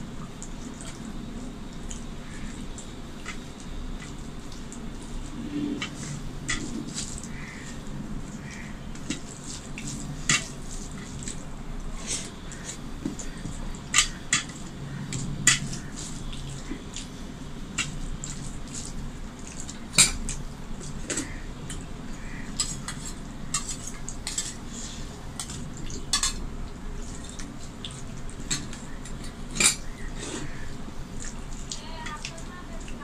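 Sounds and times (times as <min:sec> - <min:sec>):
hand mixing rice on steel plate: 0:00.0 - 0:33.0
steel dishes and spoon clinking: 0:25.4 - 0:26.4.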